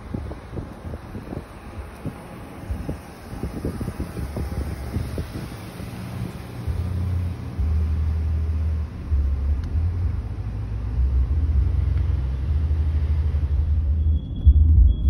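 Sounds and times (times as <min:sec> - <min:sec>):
wind buffeting microphone: 0:00.0 - 0:08.5
road noise inside car: 0:00.0 - 0:15.0.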